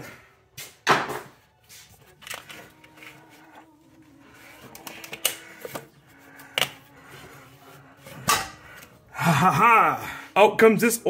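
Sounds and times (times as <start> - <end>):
rubber hose creaking and knocking: 1.1 - 8.9.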